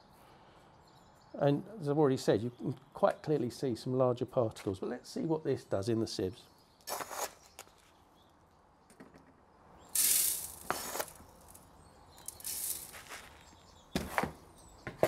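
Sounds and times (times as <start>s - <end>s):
sand pouring onto mesh: 9.9s - 11.6s, 12.2s - 13.5s.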